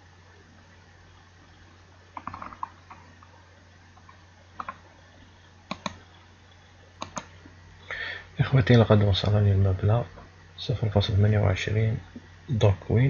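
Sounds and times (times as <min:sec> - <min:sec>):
faint low hum: 0:00.0 - 0:13.0
computer mouse clicks: 0:02.2 - 0:03.3, 0:04.0 - 0:04.8, 0:05.7 - 0:06.2, 0:07.0 - 0:07.4.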